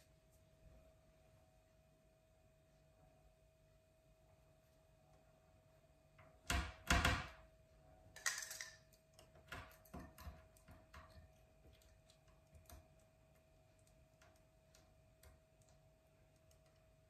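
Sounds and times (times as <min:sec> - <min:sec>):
faint steady hum: 0:00.0 - 0:17.0
light clicks and taps: 0:08.9 - 0:17.0.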